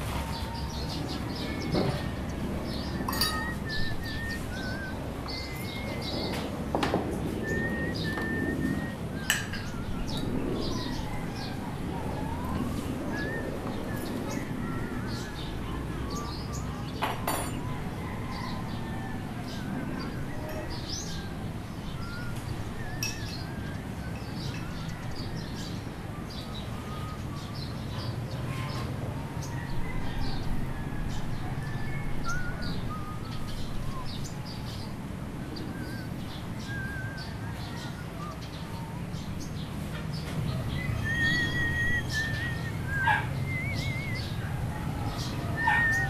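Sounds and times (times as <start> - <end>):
small birds chirping: 0.0 - 30.6, 31.2 - 46.0.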